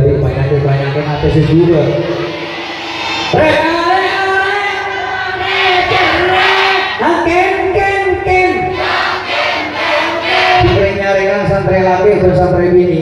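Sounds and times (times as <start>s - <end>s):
man singing into a microphone: 3.3s - 6.4s, 10.5s - 11.7s.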